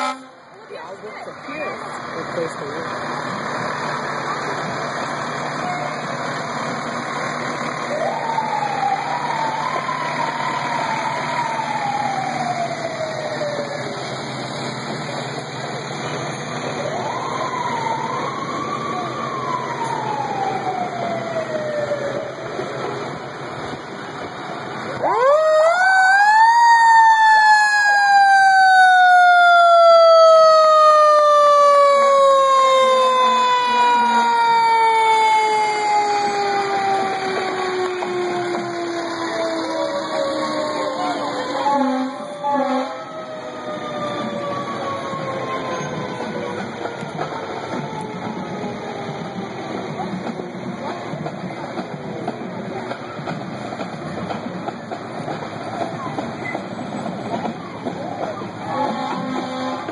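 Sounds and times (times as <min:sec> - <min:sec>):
fire truck sirens wailing: 0:00.0 - 0:59.9
loud siren winding up: 0:07.9 - 0:13.9, 0:16.7 - 0:22.4, 0:24.9 - 0:49.1.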